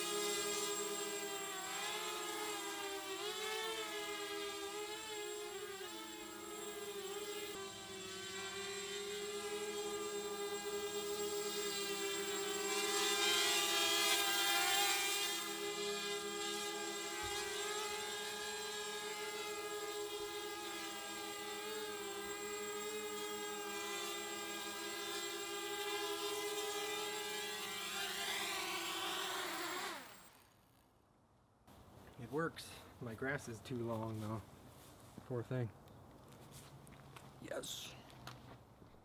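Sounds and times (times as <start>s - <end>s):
quadcopter motors whining: 0.0s - 30.8s.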